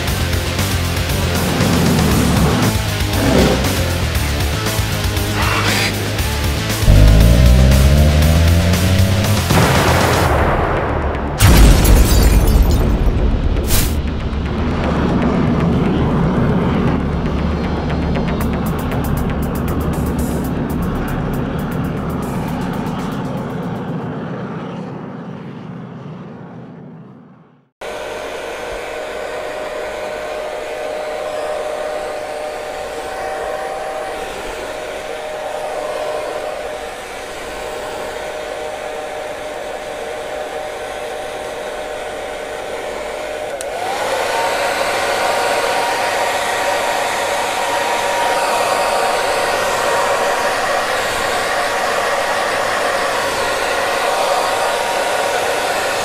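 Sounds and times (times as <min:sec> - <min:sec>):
low rumble: 0:06.9 - 0:09.9
hair dryer blowing: 0:27.8 - 0:56.0.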